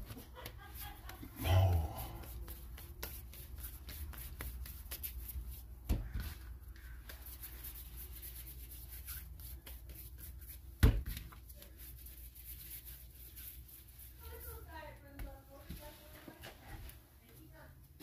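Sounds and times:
dull thumps of dough: 0.0s - 7.4s, 10.6s - 11.6s
hands rubbing dough on board: 0.0s - 17.4s.

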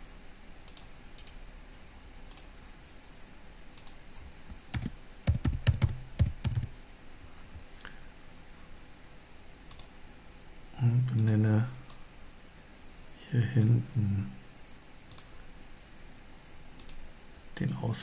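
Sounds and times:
typing on computer keyboard: 3.8s - 6.7s.

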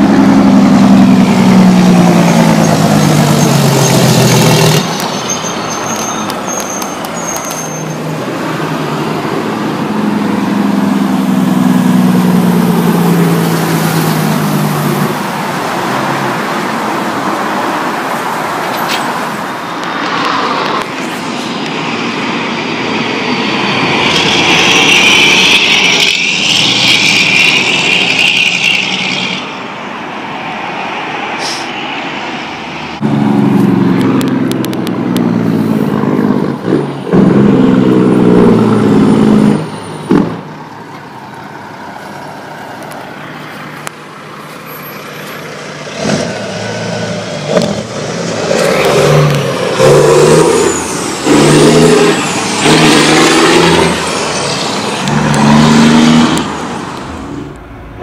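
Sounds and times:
diesel trucks passing: 0.0s - 58.0s
truck engines pulsing: 0.0s - 58.0s
loud air hiss: 31.4s - 31.8s.

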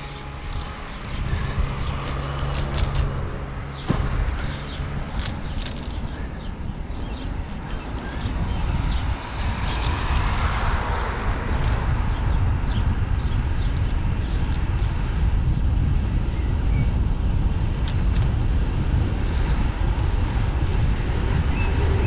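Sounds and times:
bicycle tyre noise: 0.0s - 22.0s
wind rush on microphone: 0.0s - 22.0s.

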